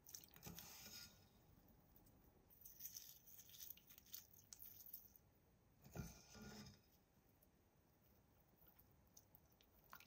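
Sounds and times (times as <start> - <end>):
salt crystals pattering into water: 2.6 - 5.2
water dripping into bowl: 9.2 - 10.0.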